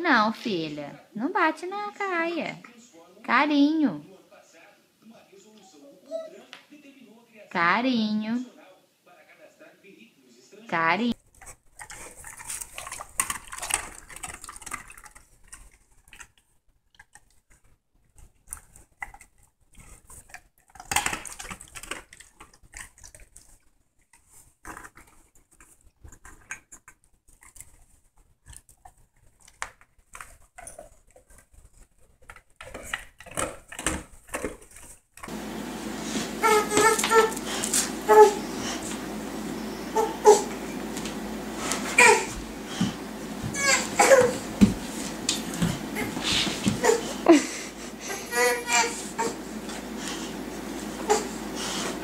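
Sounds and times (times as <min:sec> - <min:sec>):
dogs sniffing and shuffling: 0:17.1 - 0:52.0.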